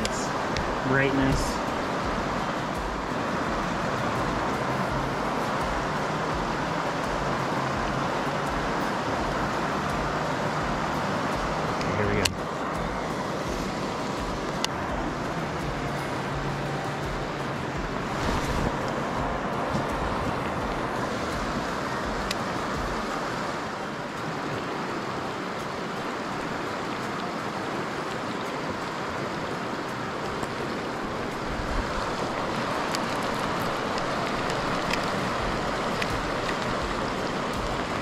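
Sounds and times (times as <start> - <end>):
heavy rain: 0.0 - 38.0
river water rushing: 0.0 - 38.0
faint ticks: 32.6 - 38.0.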